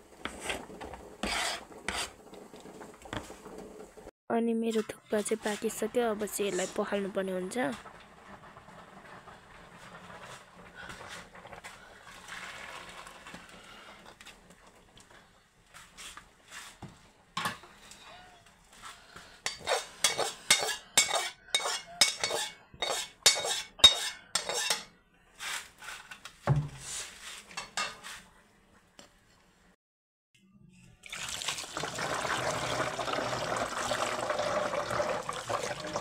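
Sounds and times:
steel cookware clanking: 0:19.4 - 0:24.9.

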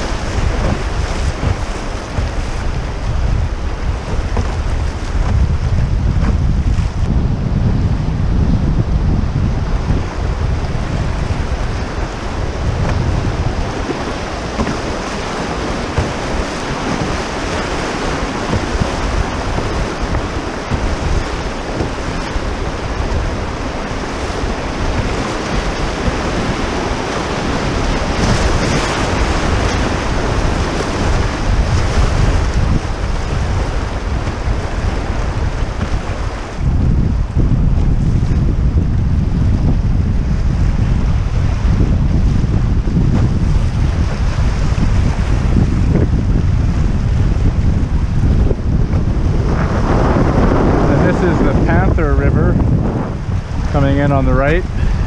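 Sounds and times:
river rapids rushing: 0:00.0 - 0:05.2, 0:11.0 - 0:36.6
wind rumbling on microphone: 0:00.0 - 0:55.0.

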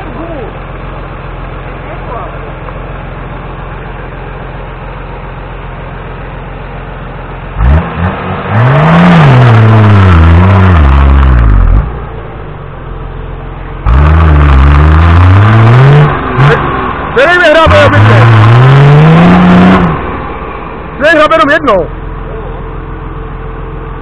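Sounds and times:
off-road engine revving: 0:07.4 - 0:12.2, 0:13.5 - 0:22.0.

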